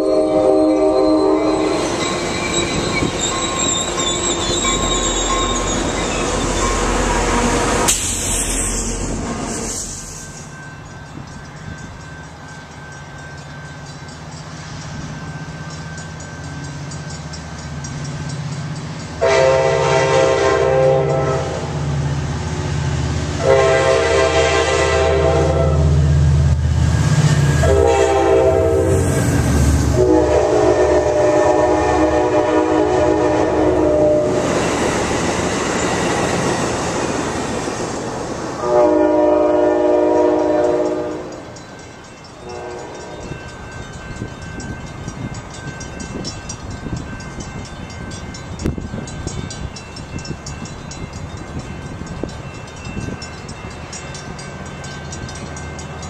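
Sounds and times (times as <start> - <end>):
train horn blasts: 0.0 - 1.8, 19.2 - 21.8, 23.4 - 26.0, 27.6 - 34.4, 38.6 - 41.4, 42.4 - 43.4
train wheels on rails: 0.0 - 56.0.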